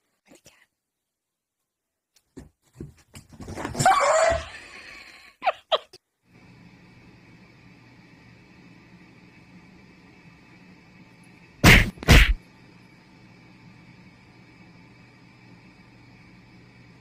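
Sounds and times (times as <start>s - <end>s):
dog yelps: 3.8s - 4.6s.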